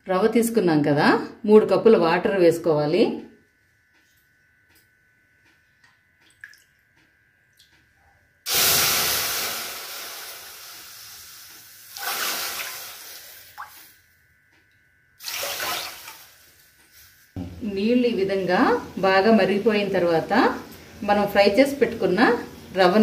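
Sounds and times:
water pouring into metal pan: 15.2 - 16.3.

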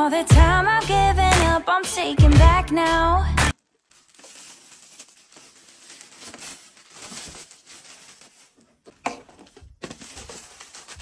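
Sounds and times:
packaging rustling and crinkling: 3.5 - 11.0.

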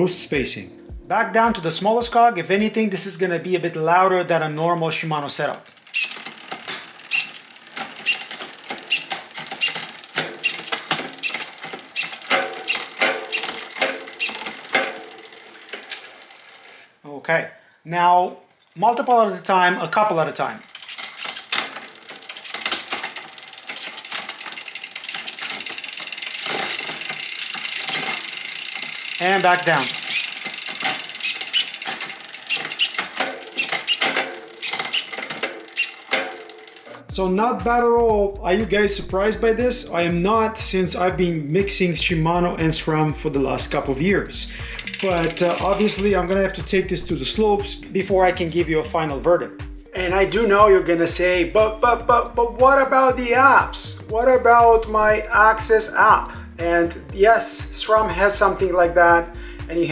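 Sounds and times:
bicycle chain clicking and rattling: 5.4 - 16.6, 20.4 - 37.1, 43.5 - 47.2
bicycle drivetrain humming: 5.6 - 16.7, 20.6 - 37.1, 43.5 - 47.1
derailleur motor whir: 5.7 - 16.6, 20.6 - 36.9, 44.8 - 46.1.

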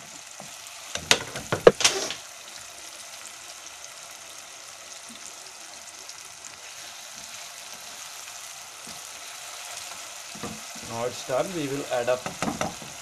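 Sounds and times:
spices sizzling in hot oil: 0.0 - 13.0.

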